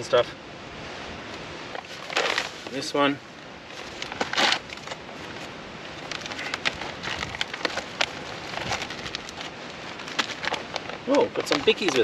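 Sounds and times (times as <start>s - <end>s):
foil pouch crinkling: 1.8s - 2.9s, 3.7s - 12.0s.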